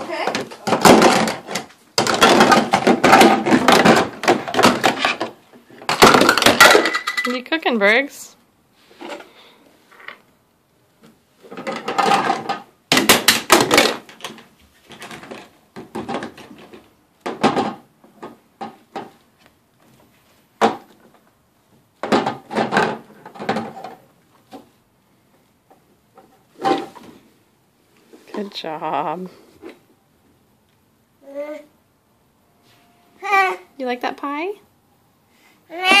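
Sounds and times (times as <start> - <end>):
plastic toy dishes clattering: 0.3 - 7.5, 11.5 - 19.1.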